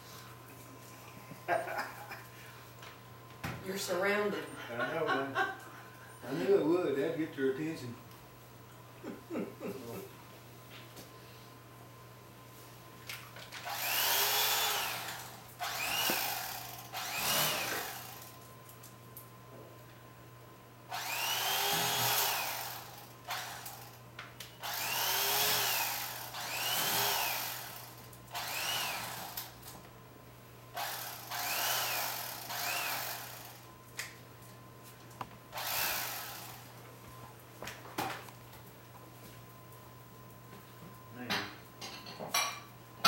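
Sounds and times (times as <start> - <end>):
electric carving knife whine: 13.7 - 18.3, 20.9 - 24.0, 24.6 - 29.6, 30.8 - 33.7, 35.6 - 36.7.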